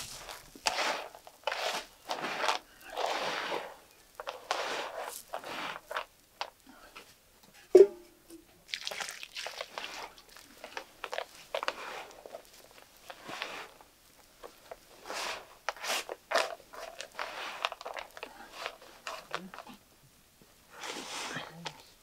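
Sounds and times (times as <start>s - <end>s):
dry grain rustling and crunching: 0.0s - 6.6s, 8.7s - 19.7s.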